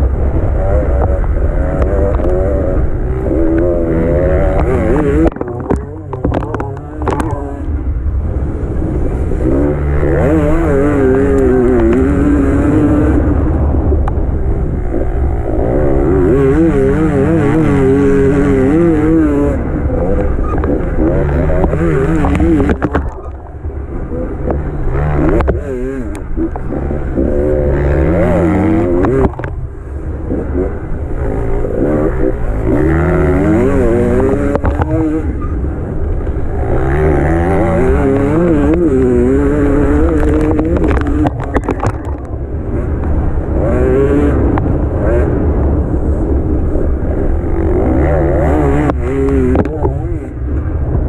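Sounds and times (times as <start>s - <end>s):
motorcycle engine revving: 0.0s - 51.0s.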